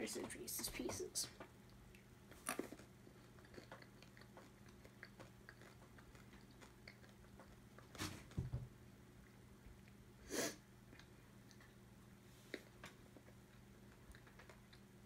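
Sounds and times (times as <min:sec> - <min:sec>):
person chewing candies: 0:01.5 - 0:08.0, 0:10.8 - 0:15.0.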